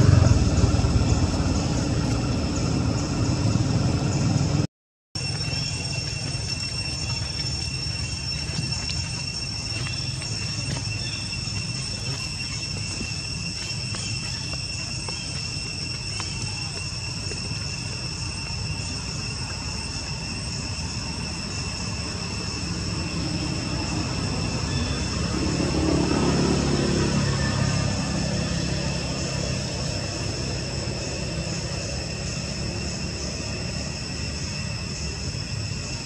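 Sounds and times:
high insect drone: 0.0s - 36.0s
low engine rumble: 0.0s - 36.0s.

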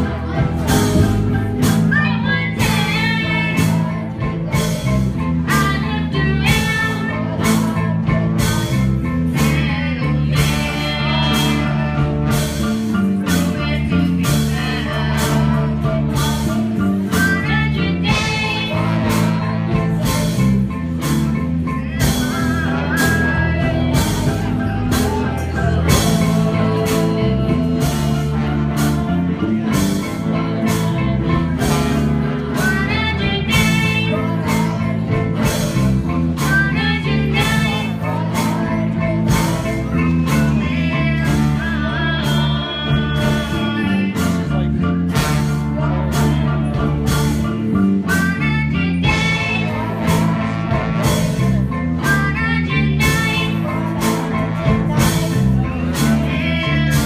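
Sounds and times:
live band playing: 0.0s - 57.0s
people singing: 0.0s - 57.0s.

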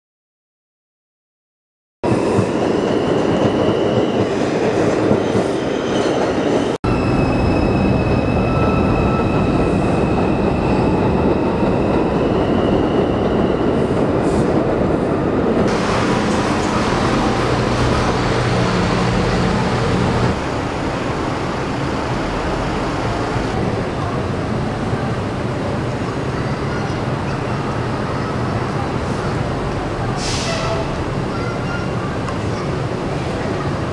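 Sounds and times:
elevated train rumble: 2.0s - 33.9s
train wheel squeal: 2.1s - 14.5s, 30.2s - 32.7s.

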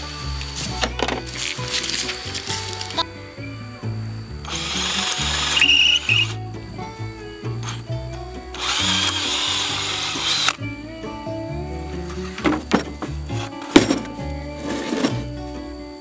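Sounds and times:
background music: 0.0s - 16.0s
cordless drill boring into wood: 4.5s - 6.4s, 8.5s - 10.6s.

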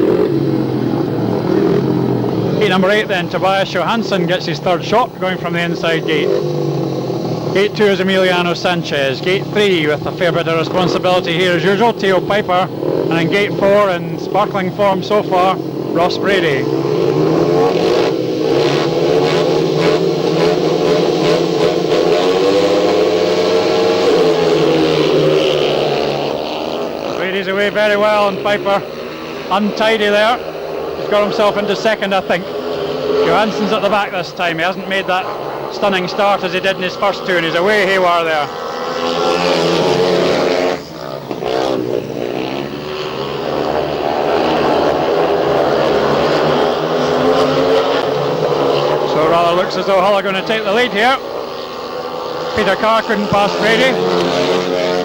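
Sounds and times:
motorbike engines revving: 0.0s - 55.0s.

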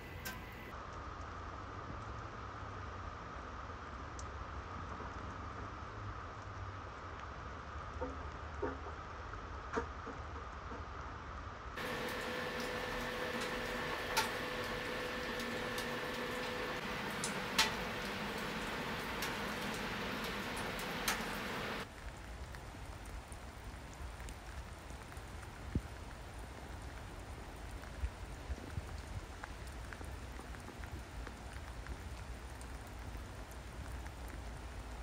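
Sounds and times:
steady rain: 0.0s - 35.0s
wood fire crackling and popping: 11.8s - 35.0s.

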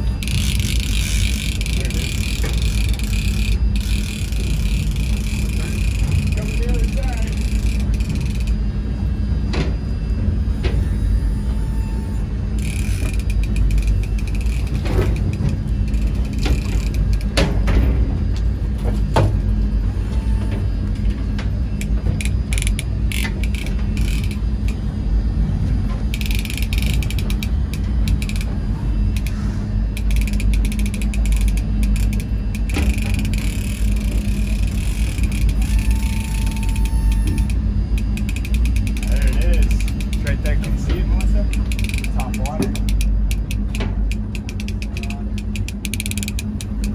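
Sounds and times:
fishing reel ratchet clicking: 0.0s - 8.6s, 12.6s - 17.3s, 21.8s - 24.8s, 26.1s - 28.5s, 29.1s - 29.3s, 29.9s - 46.9s
boat engine droning: 0.0s - 46.9s.

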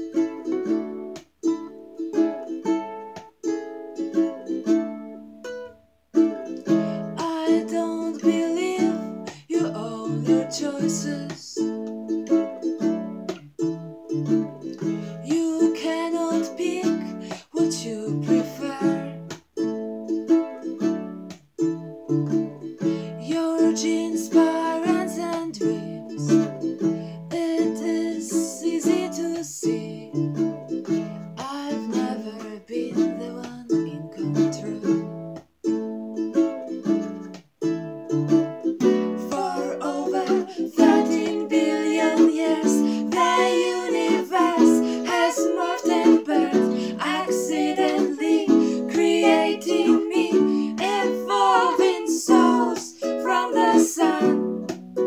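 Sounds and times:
women singing: 7.1s - 11.7s, 15.2s - 19.4s, 23.2s - 26.5s, 27.3s - 30.2s, 31.4s - 35.1s, 38.8s - 54.8s
acoustic guitars strumming: 36.4s - 55.0s.

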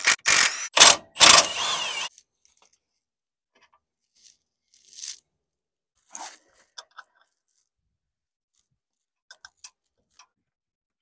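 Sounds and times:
impact wrench bursts: 0.0s - 2.1s.

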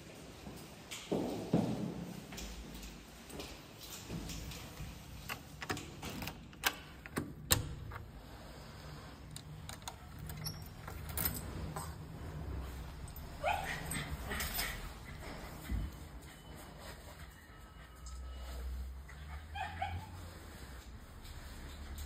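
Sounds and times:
keys jingling in door lock: 5.2s - 8.0s, 9.6s - 12.0s, 13.1s - 15.1s
dog whining: 18.0s - 20.3s.

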